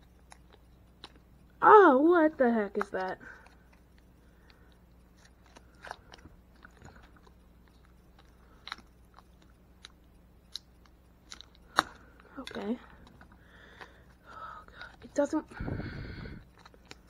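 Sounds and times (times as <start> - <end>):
plastic packaging clicks and crinkles: 2.6 - 14.0, 16.4 - 17.0.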